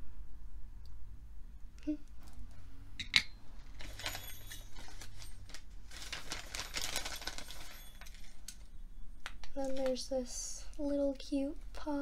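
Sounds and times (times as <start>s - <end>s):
packaging crinkling and rustling: 3.6s - 10.1s.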